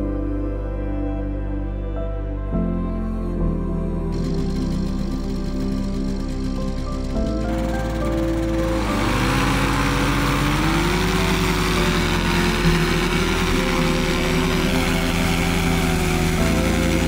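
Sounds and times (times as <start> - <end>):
propeller engine revving: 4.1 - 17.0.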